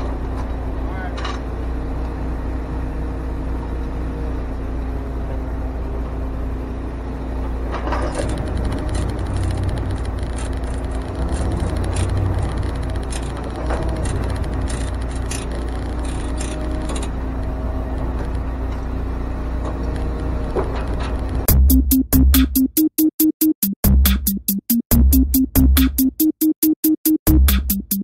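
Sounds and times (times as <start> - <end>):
truck engine rumbling: 0.0 - 22.8
sharp clicks and ticks: 8.1 - 18.5, 19.7 - 28.0.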